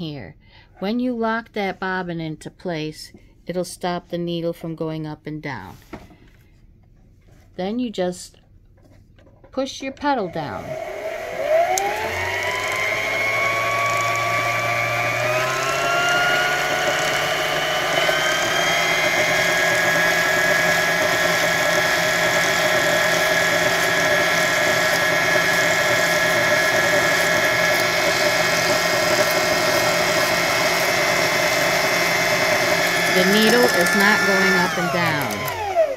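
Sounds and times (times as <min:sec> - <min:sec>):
sewing machine motor whine: 0:10.4 - 0:35.9.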